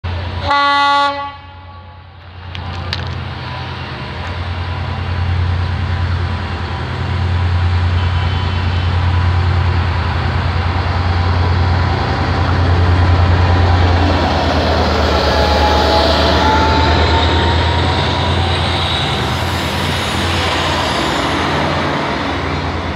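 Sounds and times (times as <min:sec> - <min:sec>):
diesel locomotive engine drone: 0:00.0 - 0:22.9.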